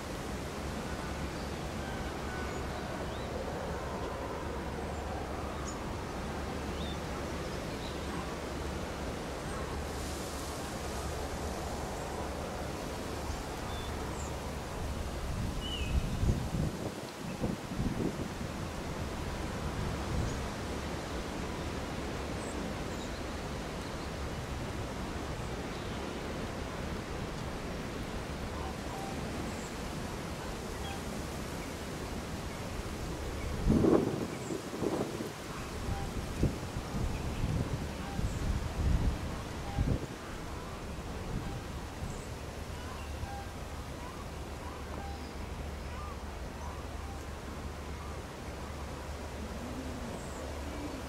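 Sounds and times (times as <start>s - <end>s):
wind noise on microphone: 9.7s - 22.8s, 27.0s - 46.4s.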